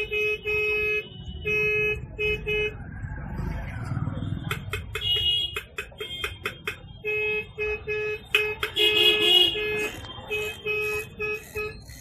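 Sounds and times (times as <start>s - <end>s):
vehicle horn honking: 5.0s - 12.0s.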